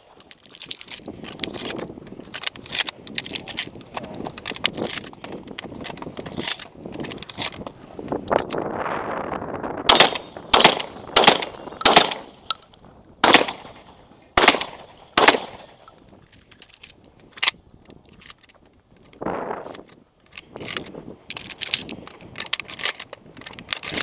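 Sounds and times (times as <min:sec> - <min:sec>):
shotgun shots: 0:09.9 - 0:12.5, 0:13.2 - 0:15.9.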